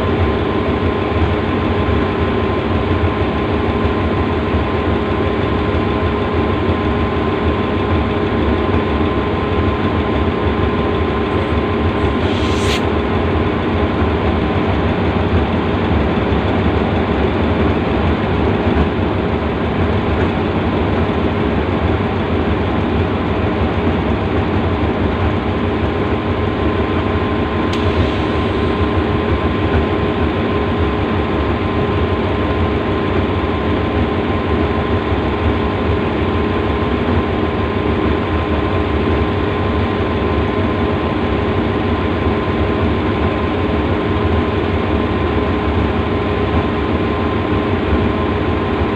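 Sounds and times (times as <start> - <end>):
high whine: 10.8 - 14.7
diesel engine idling: 27.8 - 33.0.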